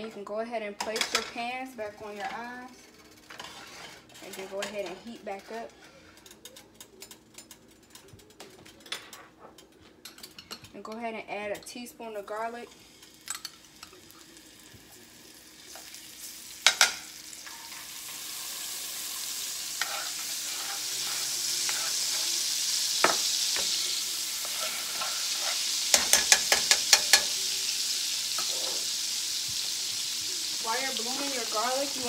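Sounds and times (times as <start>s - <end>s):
utensil clinking on pans: 0.8s - 1.4s, 3.0s - 11.8s, 13.0s - 14.2s, 16.6s - 27.5s
garlic sizzling in butter: 2.0s - 5.8s, 12.6s - 32.0s
utensil tapping pans: 25.9s - 27.4s.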